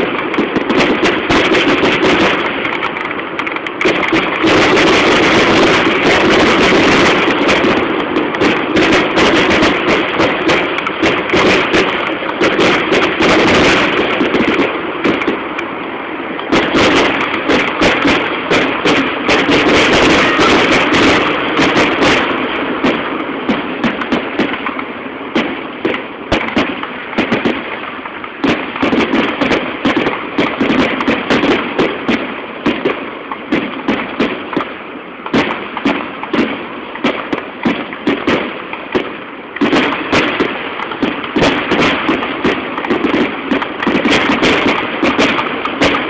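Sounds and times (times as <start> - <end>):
continuous background din: 0.0 - 46.0
fireworks bangs and crackling: 0.0 - 46.0.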